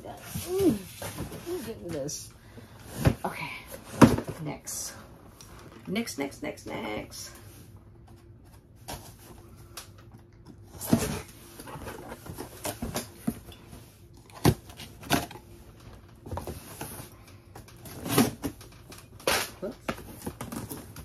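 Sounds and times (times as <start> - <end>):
cardboard scraping and rustling: 10.7 - 13.4.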